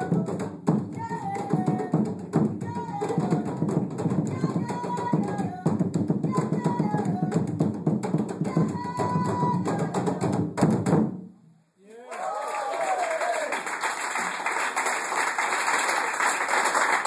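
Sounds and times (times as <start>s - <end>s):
hand drums playing fast rhythm: 0.0s - 11.1s.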